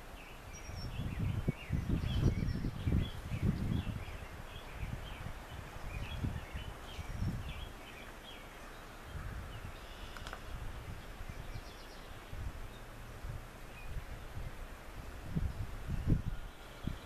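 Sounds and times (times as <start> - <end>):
birds chirping and singing: 0.2 - 12.9.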